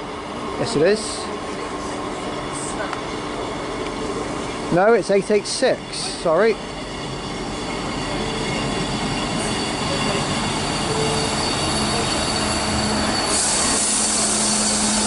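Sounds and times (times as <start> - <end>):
train engines and wheels: 0.0 - 15.0
high wheel squeal: 3.4 - 15.0
hiss: 13.0 - 15.0.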